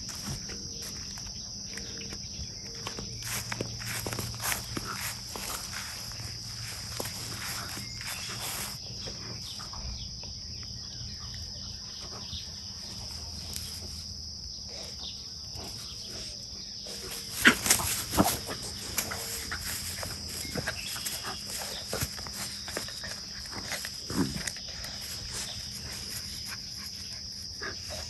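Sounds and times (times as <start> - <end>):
puppies scuffling on grass: 0.0 - 9.7, 15.5 - 28.0
high-pitched insect drone: 0.0 - 28.0.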